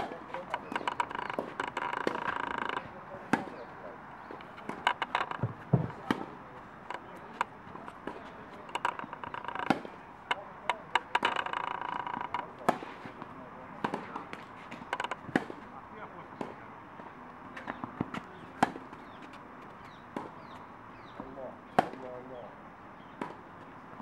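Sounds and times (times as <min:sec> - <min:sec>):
racket striking tennis ball: 0:00.0 - 0:15.6
tennis ball bouncing: 0:00.0 - 0:15.6.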